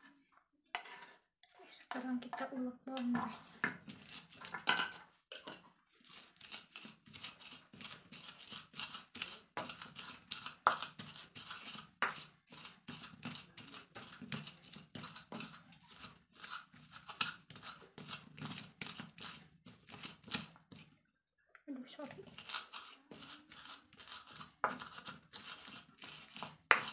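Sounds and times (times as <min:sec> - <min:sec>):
pestle crushing in mortar: 0:06.1 - 0:20.8, 0:22.2 - 0:26.9.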